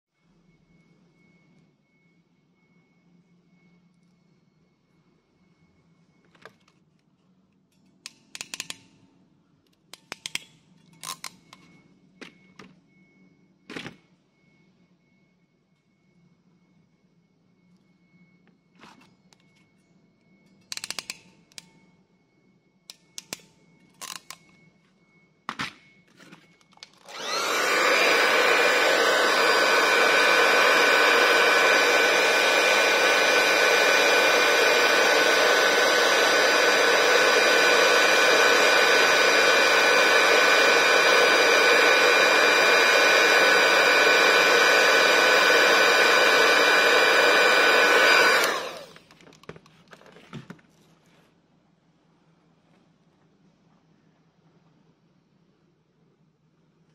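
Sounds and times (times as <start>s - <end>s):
heat gun fan whining: 26.7s - 50.0s.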